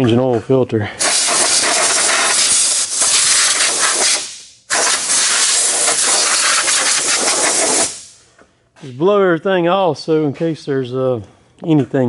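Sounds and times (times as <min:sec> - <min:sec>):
compressed air blow gun hissing: 0:01.0 - 0:08.2.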